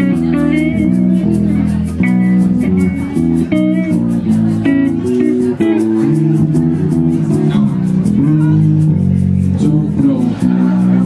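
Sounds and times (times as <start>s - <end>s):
amplified electric guitar: 0.0s - 11.0s
electric bass guitar line: 0.0s - 11.0s.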